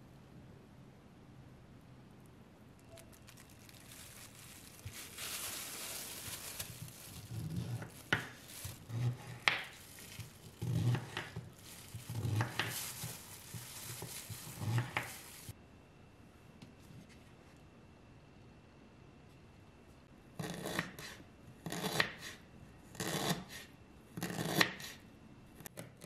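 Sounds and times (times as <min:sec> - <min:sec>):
plastic glove crinkling: 0:02.8 - 0:15.6
knife cutting on wooden board: 0:07.3 - 0:08.3, 0:10.6 - 0:11.4.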